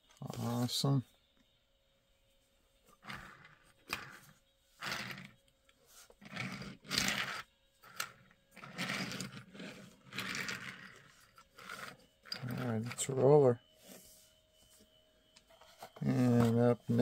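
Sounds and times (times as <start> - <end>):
toy car wheels rumbling: 3.0 - 5.4, 6.2 - 13.1.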